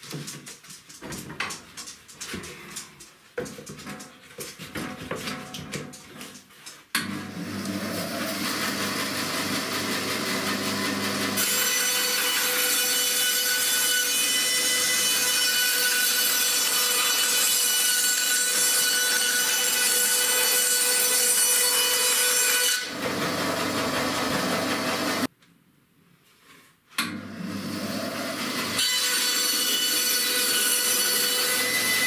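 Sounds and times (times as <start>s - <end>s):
bandsaw cutting board: 7.0s - 25.3s, 27.1s - 32.0s.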